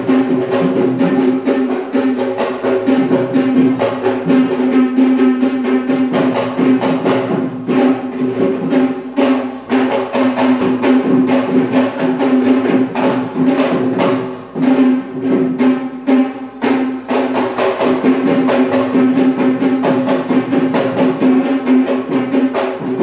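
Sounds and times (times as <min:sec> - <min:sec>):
crisp jingling: 0:00.0 - 0:04.6, 0:06.0 - 0:23.0
drums beaten fast: 0:00.0 - 0:23.0.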